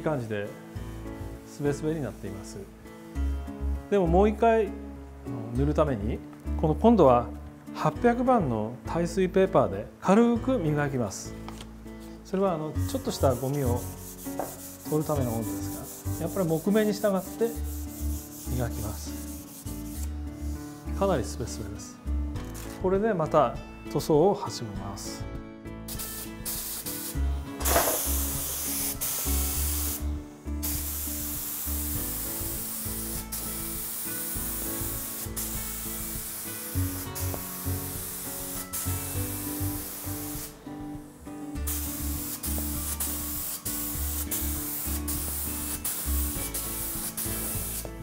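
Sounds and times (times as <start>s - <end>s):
spray gun hissing: 13.0s - 20.1s, 25.9s - 40.6s, 41.6s - 48.0s.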